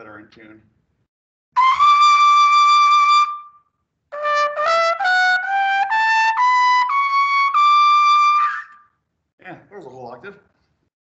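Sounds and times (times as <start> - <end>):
trumpet playing: 4.2 - 8.8.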